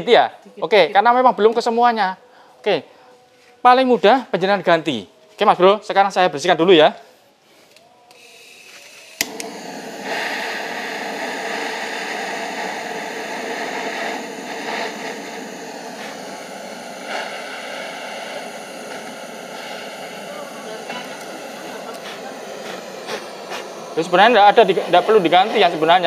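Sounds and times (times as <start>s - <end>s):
pressurised spraying hiss: 9.0s - 26.0s.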